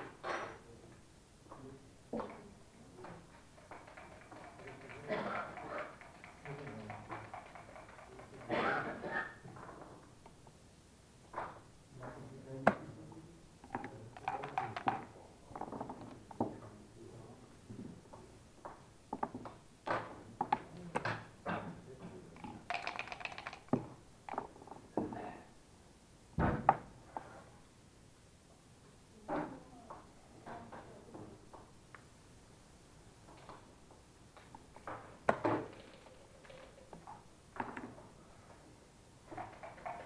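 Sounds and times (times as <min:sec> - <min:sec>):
checkers clicking on board: 0:03.2 - 0:08.5, 0:13.8 - 0:15.0, 0:22.4 - 0:23.8
dice rattling: 0:03.2 - 0:08.5, 0:13.8 - 0:15.1, 0:22.4 - 0:24.4, 0:35.3 - 0:37.0, 0:39.3 - 0:40.0.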